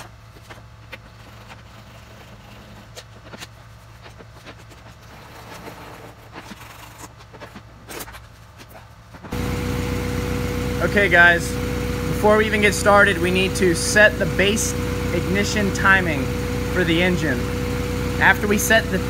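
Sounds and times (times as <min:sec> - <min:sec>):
low steady hum: 0:00.0 - 0:19.0
loud steady running tone: 0:08.9 - 0:19.0.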